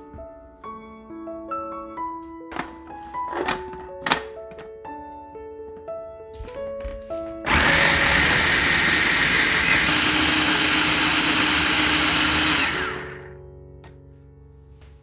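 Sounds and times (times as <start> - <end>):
food processor running: 7.5 - 13.4.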